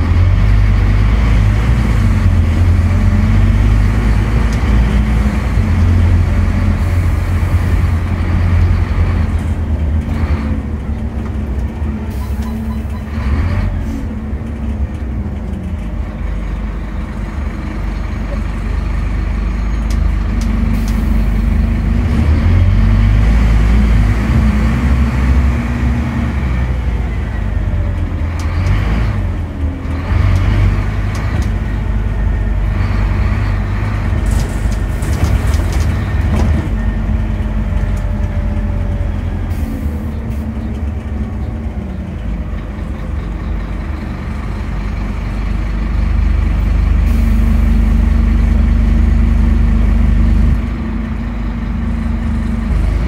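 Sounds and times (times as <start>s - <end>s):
bus engine drone: 0.0s - 53.0s.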